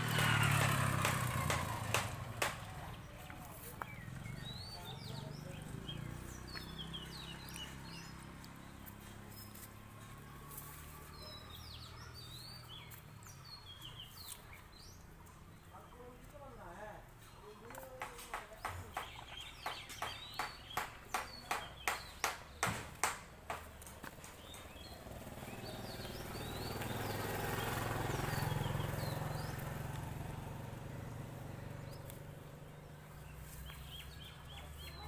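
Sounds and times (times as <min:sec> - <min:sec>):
vehicle passing on road: 0:00.0 - 0:16.2, 0:18.8 - 0:35.0
birds chirping: 0:00.0 - 0:35.0
sharp knocks: 0:00.5 - 0:02.7, 0:18.0 - 0:23.8.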